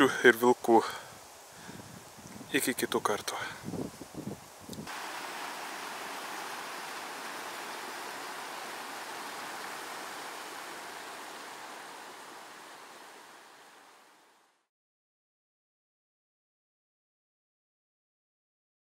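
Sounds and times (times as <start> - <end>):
water rushing over stones: 4.8 - 14.4.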